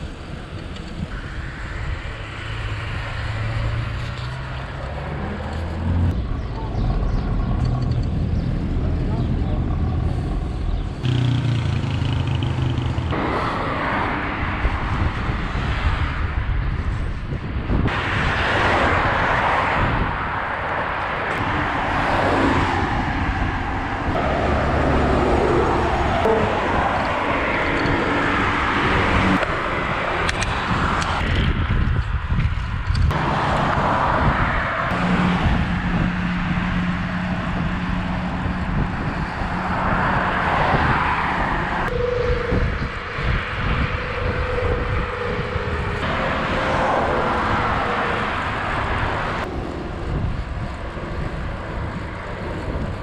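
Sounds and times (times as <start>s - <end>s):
passing car traffic: 0.0s - 53.0s
wind and road noise: 0.0s - 53.0s
vehicle engine running low: 3.5s - 13.5s.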